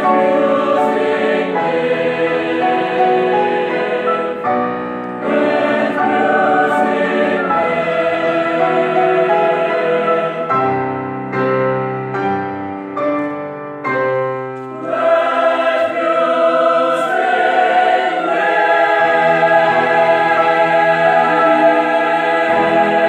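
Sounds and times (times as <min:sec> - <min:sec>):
mixed choir singing: 0:00.0 - 0:10.8, 0:14.7 - 0:23.0
piano accompaniment: 0:00.0 - 0:23.0.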